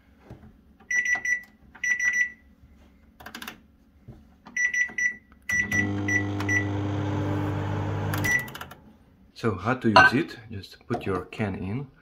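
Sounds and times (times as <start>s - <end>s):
microwave short high beeps: 4.6s - 7.0s, 8.1s - 8.6s
microwave oven humming: 5.5s - 8.9s.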